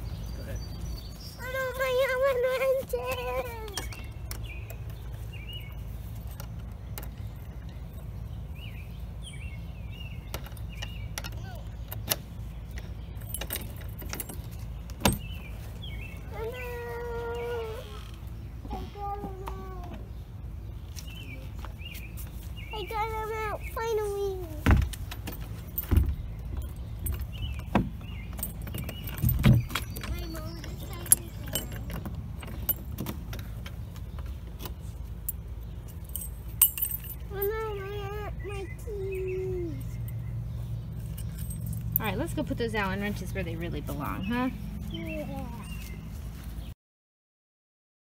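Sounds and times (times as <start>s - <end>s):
bird chirping: 0.0s - 46.7s
keys jangling: 28.4s - 33.0s, 35.2s - 37.7s, 41.0s - 42.0s.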